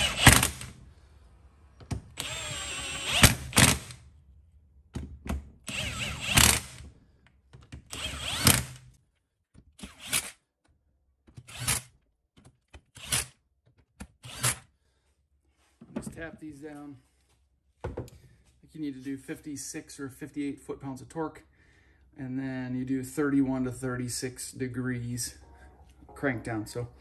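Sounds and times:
impact wrench bursts: 0:00.0 - 0:00.8, 0:02.2 - 0:04.0, 0:05.7 - 0:06.8, 0:07.9 - 0:08.8.

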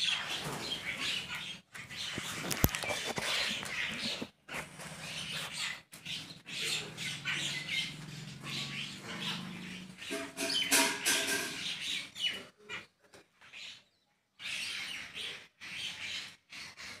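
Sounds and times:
flock of birds chattering: 0:00.0 - 0:17.0.

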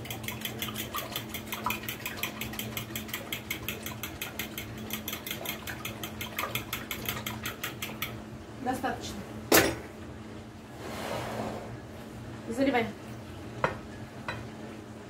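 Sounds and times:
fork beating in glass bowl: 0:00.0 - 0:08.2.

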